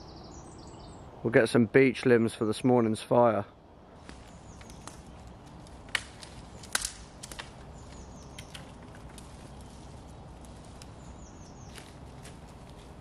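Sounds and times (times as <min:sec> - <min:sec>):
bird calls: 0:04.0 - 0:05.3, 0:07.7 - 0:11.9
branch snapping: 0:04.0 - 0:11.0
crunching in dry leaf litter: 0:04.0 - 0:13.0.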